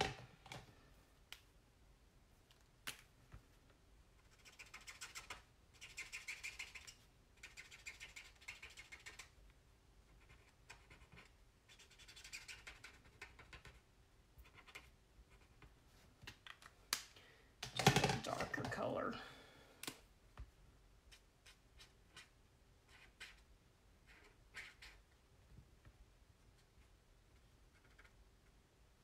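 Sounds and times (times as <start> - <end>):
marker tip scratching on paper: 4.2 - 9.3, 10.1 - 13.8, 14.4 - 15.7, 21.1 - 25.2.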